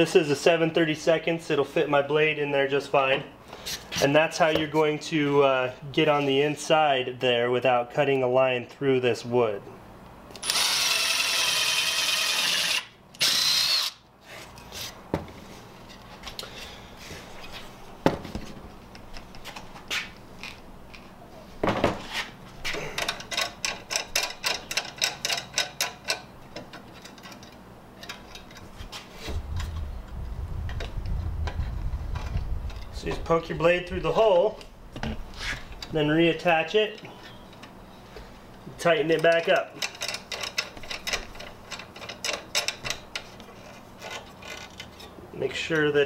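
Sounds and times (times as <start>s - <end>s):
cordless drill motor whine: 10.4s - 14.0s
low hum: 29.2s - 35.9s.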